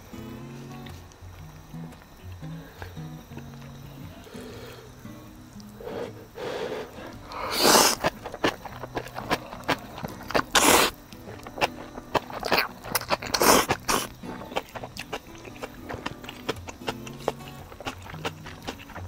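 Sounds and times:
chewing clicks: 0:00.7 - 0:04.4, 0:07.0 - 0:19.0
person slurping noodles: 0:05.8 - 0:11.0, 0:12.4 - 0:14.2.

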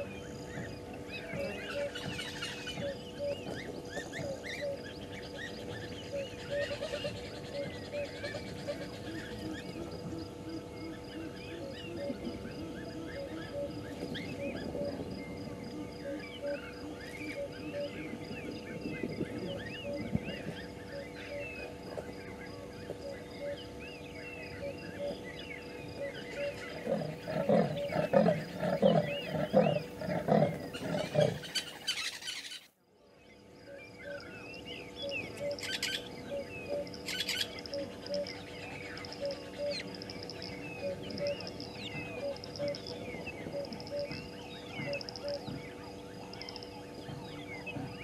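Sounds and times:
birds chirping: 0:00.0 - 0:48.0
leopard sawing call: 0:26.4 - 0:32.6.

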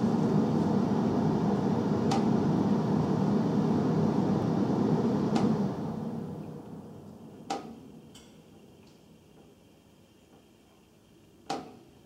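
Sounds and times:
furnace air blowing through duct: 0:00.0 - 0:12.0
sharp metallic taps from ductwork: 0:07.5 - 0:09.6.

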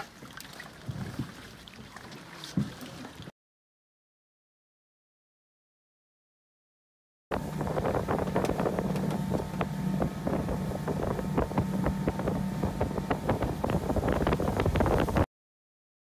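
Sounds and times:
outboard motor humming: 0:07.3 - 0:15.3
wind on microphone: 0:07.3 - 0:15.3.

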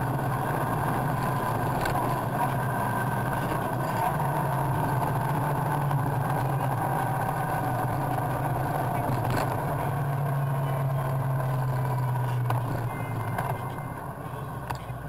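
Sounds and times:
road and wind noise: 0:00.0 - 0:15.0
vehicle engine running: 0:00.0 - 0:15.0.

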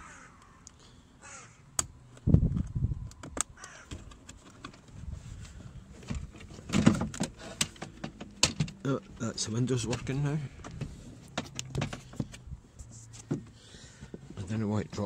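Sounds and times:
crows cawing: 0:00.0 - 0:01.7, 0:03.6 - 0:03.9.

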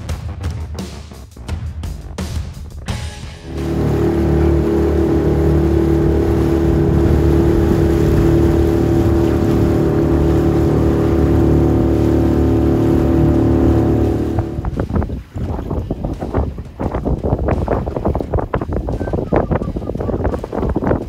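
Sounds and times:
wind: 0:03.0 - 0:21.0
water hissing: 0:03.5 - 0:15.0
outboard motor running: 0:03.5 - 0:15.9.

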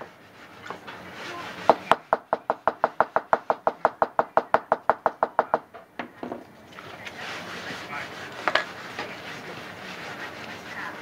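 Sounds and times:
gloved hands rubbing wooden tape: 0:00.0 - 0:03.6, 0:07.0 - 0:11.0
small hammer tapping on wood: 0:01.7 - 0:06.4.

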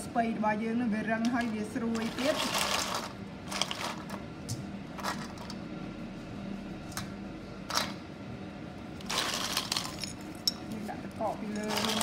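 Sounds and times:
ice cubes clinking in steel bowl: 0:01.4 - 0:04.2, 0:09.0 - 0:10.7, 0:11.4 - 0:12.0.

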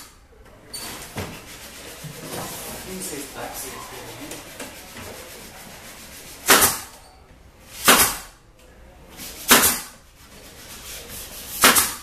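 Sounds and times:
pneumatic nailer firing: 0:06.4 - 0:06.9, 0:07.8 - 0:08.4, 0:09.5 - 0:09.9, 0:11.6 - 0:12.0.

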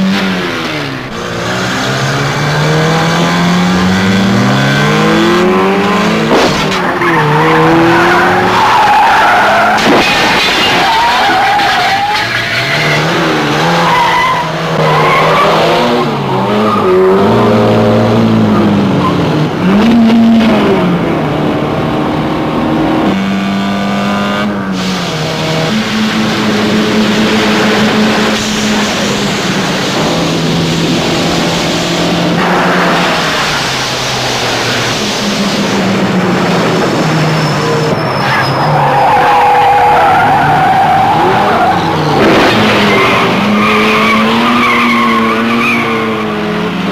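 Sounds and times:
car engines revving: 0:00.0 - 0:46.9
tyres squealing and skidding: 0:06.3 - 0:17.8, 0:37.0 - 0:46.5.

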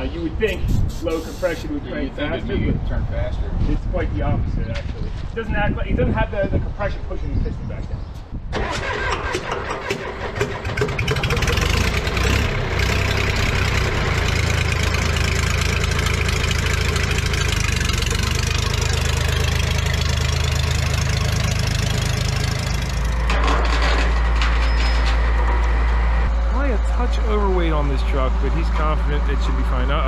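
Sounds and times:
diesel engine turning over: 0:08.5 - 0:30.0
low engine hum: 0:10.5 - 0:30.0.

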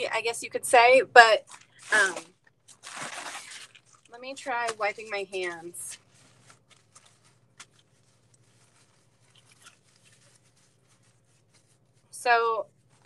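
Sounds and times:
low steady hum: 0:00.0 - 0:13.0
hands rubbing in a cloth towel: 0:04.2 - 0:13.0.

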